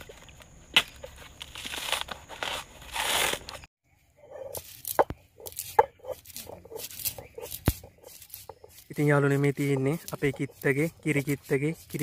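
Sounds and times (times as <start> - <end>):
coconut husk tearing: 0.7 - 3.7.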